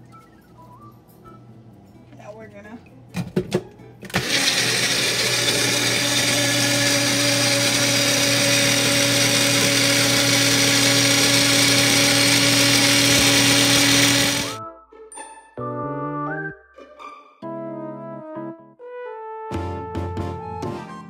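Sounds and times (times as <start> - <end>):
blender motor whirring: 4.1 - 14.6.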